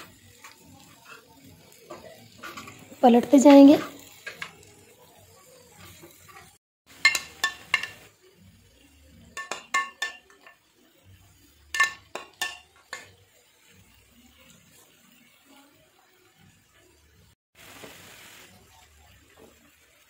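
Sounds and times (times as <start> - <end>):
metal utensils clinking on pan: 0.0 - 4.9, 5.5 - 8.1, 9.2 - 10.7, 11.6 - 13.2
chicken sizzling on griddle: 0.0 - 20.0.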